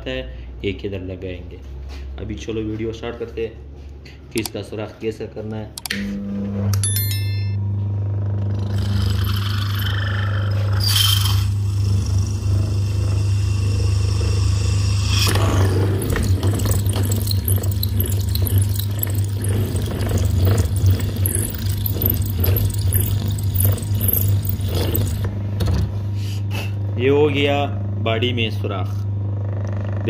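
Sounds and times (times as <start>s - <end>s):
electric drill motor humming: 8.4s - 25.3s
drill bit scraping into metal: 8.6s - 25.3s.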